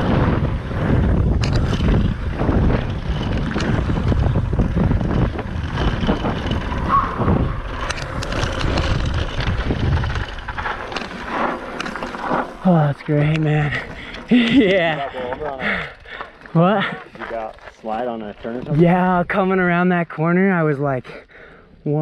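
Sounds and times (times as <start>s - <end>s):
wind buffeting microphone: 0.0s - 16.4s
bike clicks and rattles: 0.0s - 18.9s
bike tyre noise on gravel: 0.0s - 19.8s.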